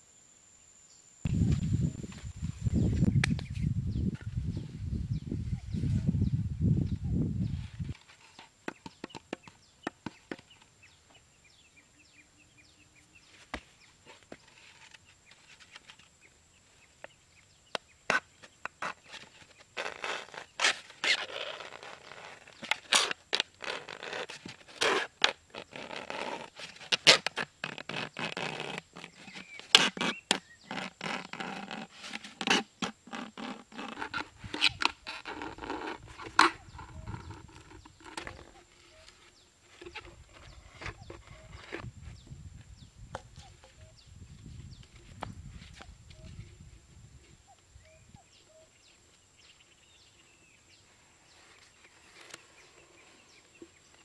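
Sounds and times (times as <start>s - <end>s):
knife sawing through plastic bottle: 18.8s - 38.5s.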